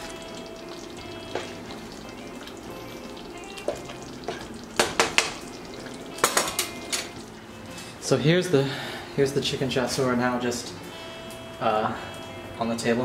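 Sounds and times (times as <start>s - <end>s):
sauce simmering in a pan: 0.0s - 7.7s.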